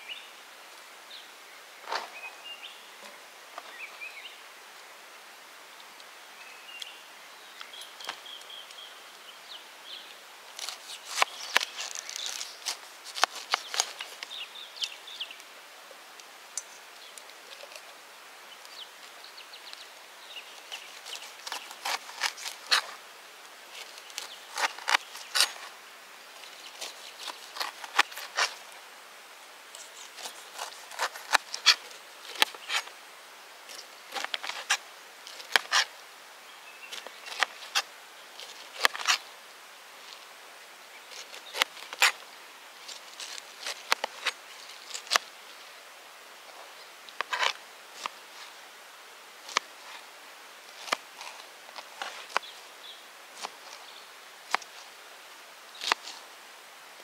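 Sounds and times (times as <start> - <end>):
knife cutting pineapple rind: 10.6 - 14.4, 20.6 - 23.0, 23.7 - 25.7, 26.5 - 28.7, 29.7 - 33.0, 34.1 - 35.9, 37.0 - 39.2, 53.4 - 53.8, 55.8 - 56.2.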